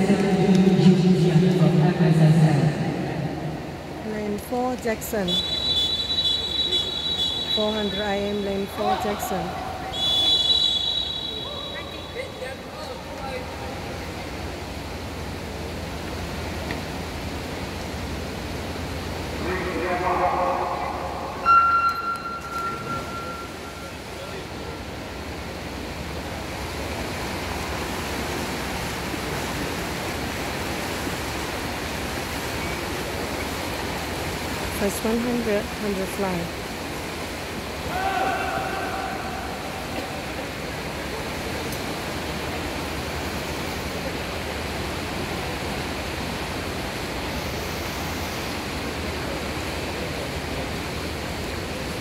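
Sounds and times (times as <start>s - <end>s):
swimmers splashing: 5.1s - 13.6s.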